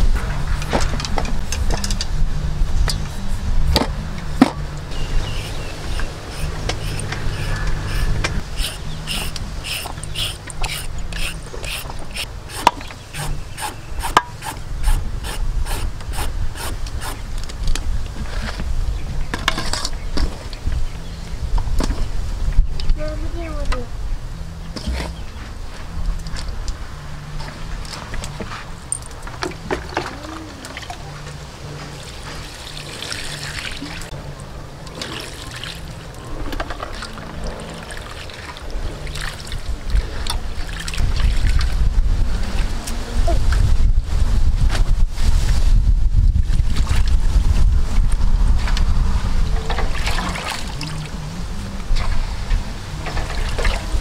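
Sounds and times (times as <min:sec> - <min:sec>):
water pouring into metal bowl: 0:32.4 - 0:34.1, 0:34.9 - 0:36.0.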